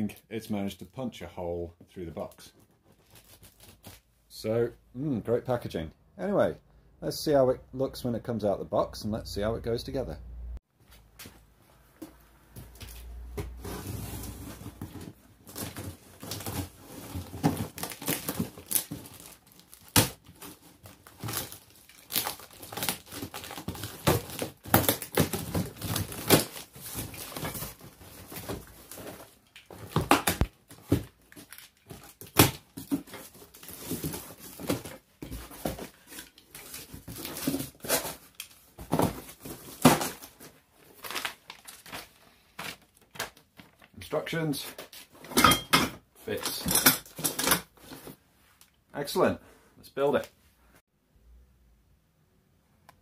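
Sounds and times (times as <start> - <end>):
cardboard flaps scraping and crinkling: 12.6 - 43.9.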